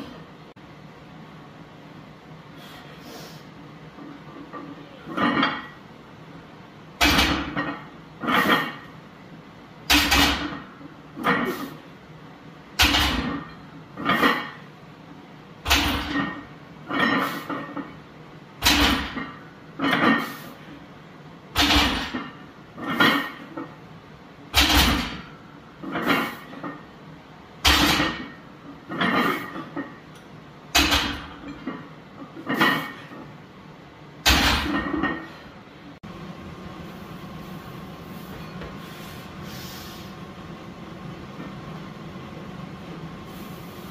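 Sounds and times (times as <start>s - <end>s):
barbell clanking on metal supports: 7.0s - 8.9s, 9.9s - 11.6s, 12.8s - 14.6s, 15.7s - 18.0s, 18.6s - 20.4s, 21.6s - 23.8s, 24.6s - 26.8s, 27.6s - 30.0s, 30.7s - 33.2s, 34.2s - 35.4s.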